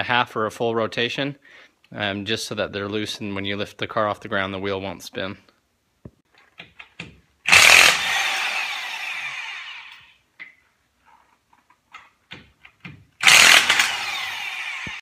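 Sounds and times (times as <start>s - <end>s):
impact wrench bursts: 7.5s - 10.1s, 13.2s - 15.0s.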